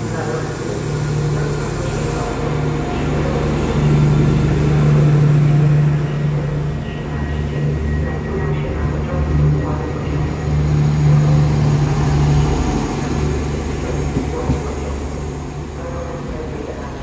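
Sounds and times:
train diesel engine drone: 0.0s - 17.0s.

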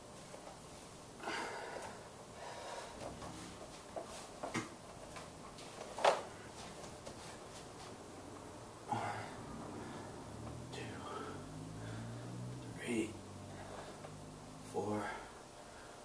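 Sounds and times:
person breathing: 1.2s - 3.6s, 8.8s - 16.0s.

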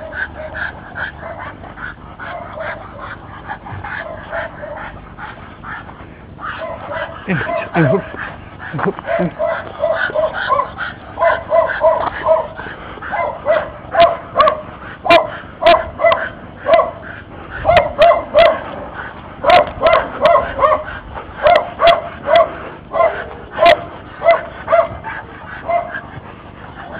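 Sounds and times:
dog barking: 6.4s - 8.1s, 9.1s - 18.7s, 19.4s - 26.0s.

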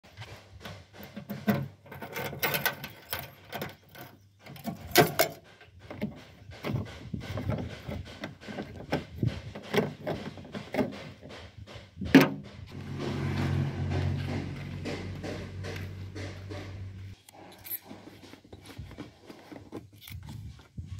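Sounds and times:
steady low rumble: 12.4s - 17.2s
tank cap being unscrewed: 17.2s - 20.8s.

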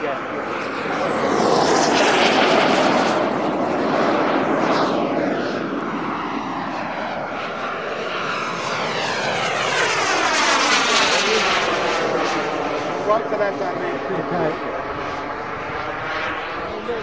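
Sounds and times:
model jet turbine rushing: 0.0s - 17.0s.

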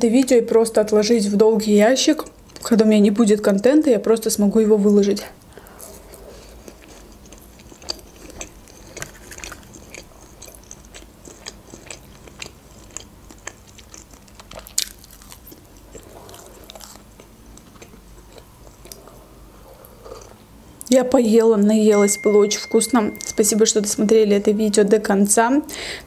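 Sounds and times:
mouth chewing clicks and smacks: 6.6s - 19.2s.

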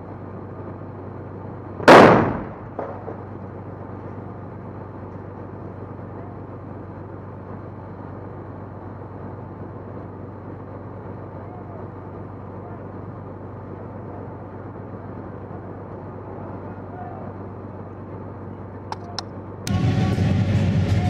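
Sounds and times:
engine rumble: 0.0s - 21.0s
loud explosion: 1.8s - 3.1s.

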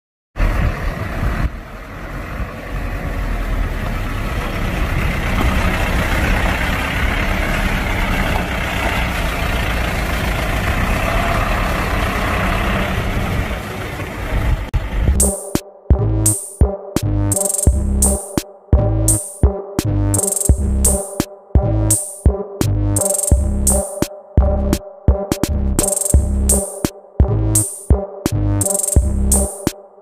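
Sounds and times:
diesel truck engine rumble: 0.4s - 15.3s.

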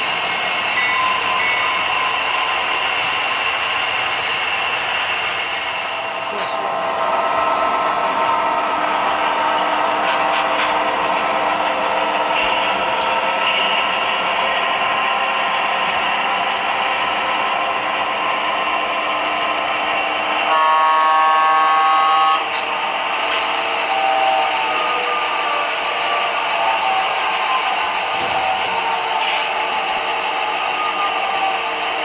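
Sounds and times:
diesel engine sound: 0.0s - 32.0s
locomotive horn blowing: 20.4s - 22.6s.

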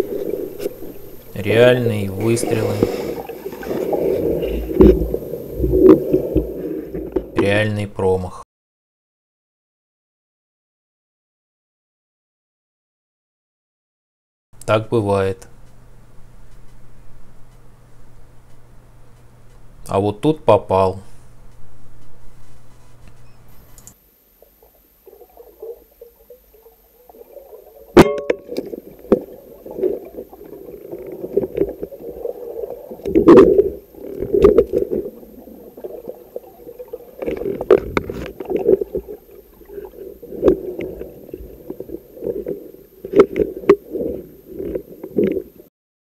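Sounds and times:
muffled underwater churning: 0.0s - 7.6s, 23.5s - 45.7s.

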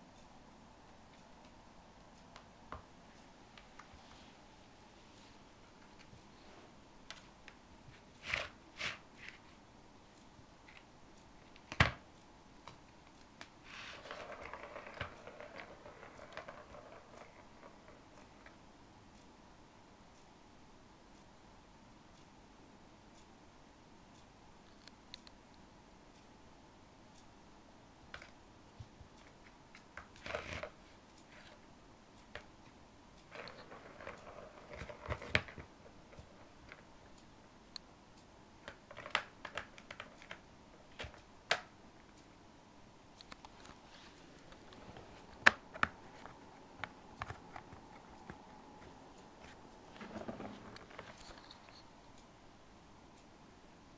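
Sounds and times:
ball rattling around plastic track: 13.8s - 18.5s, 30.0s - 30.8s, 33.3s - 36.8s.

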